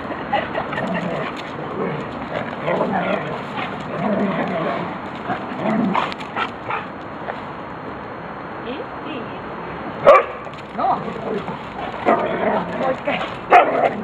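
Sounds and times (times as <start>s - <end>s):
dogs vocalizing while play-fighting: 0.0s - 7.0s, 10.1s - 14.0s.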